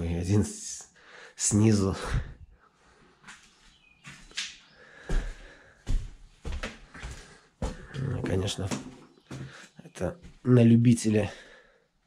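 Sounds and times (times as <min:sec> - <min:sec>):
footsteps on bare floor: 0:03.2 - 0:10.5.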